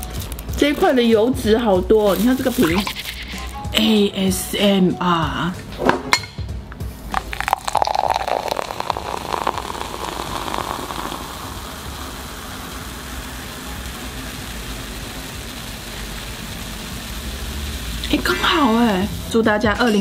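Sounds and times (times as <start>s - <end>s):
soda fizzing hiss: 2.0s - 3.6s, 7.1s - 19.4s
soda pouring into a glass: 7.1s - 19.2s.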